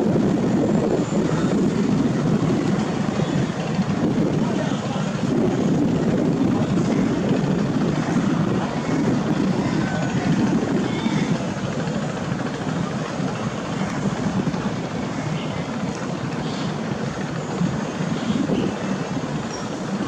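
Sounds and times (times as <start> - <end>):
boat engines rumbling: 0.0 - 20.0
water rushing against hull: 0.0 - 20.0.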